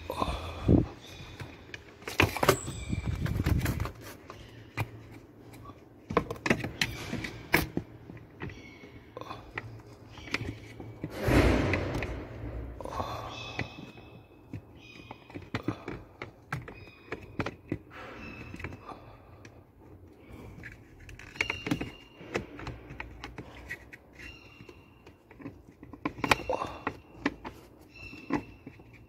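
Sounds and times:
plastic clicks and scrapes: 0:20.3 - 0:29.0.

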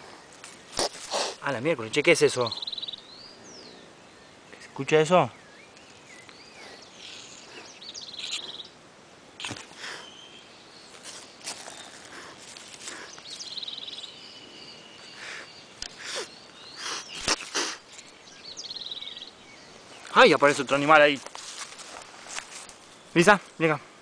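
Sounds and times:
kitten hissing and spitting: 0:00.7 - 0:01.4, 0:15.9 - 0:17.9.

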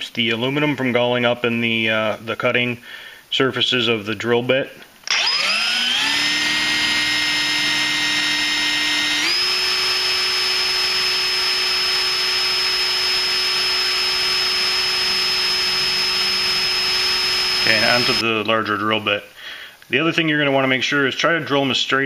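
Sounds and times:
cordless drill whining: 0:05.1 - 0:18.2.

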